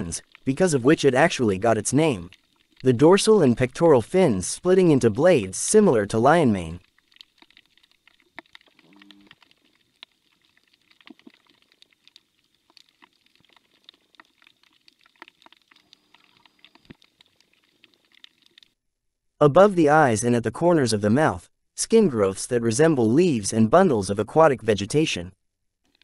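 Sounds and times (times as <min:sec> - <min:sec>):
underwater clicks and crackles: 0:00.0 - 0:03.7, 0:06.2 - 0:18.8.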